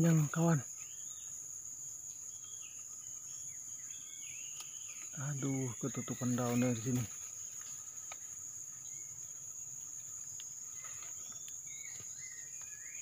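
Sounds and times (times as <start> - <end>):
high-pitched insect drone: 0.0 - 13.0
whistled bird calls: 10.8 - 13.0.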